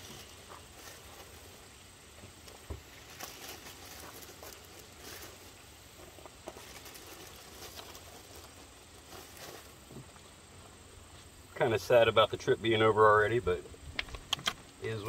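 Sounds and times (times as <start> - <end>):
soft handling sounds: 0.0 - 11.4
plastic bag rustling: 2.4 - 10.0.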